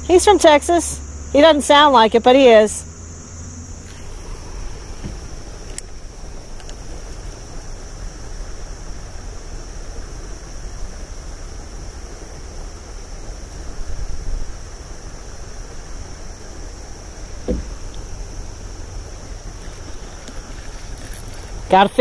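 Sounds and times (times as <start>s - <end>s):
steady high-pitched whine: 0.0s - 22.0s
wind rumbling on microphone: 3.8s - 22.0s
knock: 17.5s - 17.7s.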